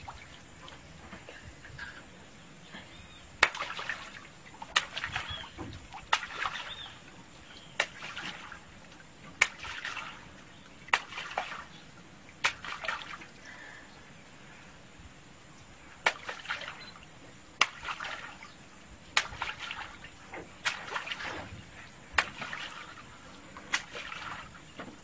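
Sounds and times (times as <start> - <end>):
short water splashes: 0.0 - 1.2, 3.4 - 13.7, 16.0 - 25.0
sharp slaps in water: 3.4 - 6.9, 7.6 - 8.6, 9.3 - 10.2, 10.8 - 11.7, 12.4 - 13.3, 16.0 - 16.9, 17.6 - 18.4, 19.1 - 21.5, 22.1 - 23.0, 23.7 - 24.5.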